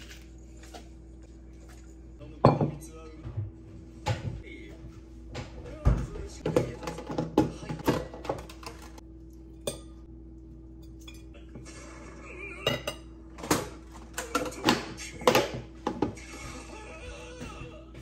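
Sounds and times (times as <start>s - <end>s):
tongs clinking on a ceramic bowl: 10.8s - 11.4s.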